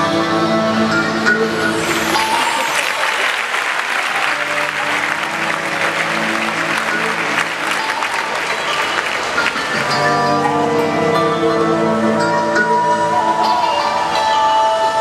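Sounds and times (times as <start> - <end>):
background music with long notes: 0.0 - 15.0
audience applause: 1.7 - 10.7.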